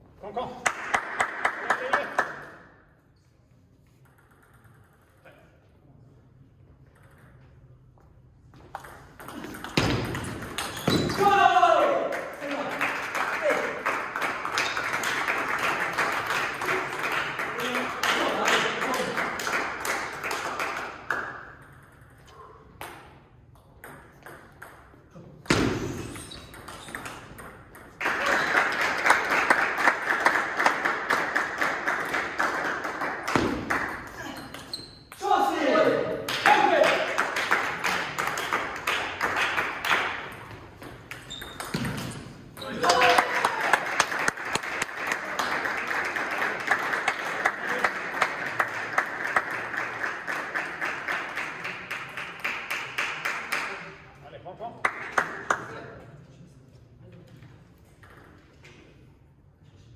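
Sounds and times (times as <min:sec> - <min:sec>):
crowd clapping and cheering: 0:00.6 - 0:02.5, 0:11.4 - 0:21.3, 0:28.0 - 0:34.0, 0:36.3 - 0:40.3, 0:42.8 - 0:53.8
spectators applauding: 0:12.1 - 0:21.3, 0:28.0 - 0:33.9, 0:42.8 - 0:53.8.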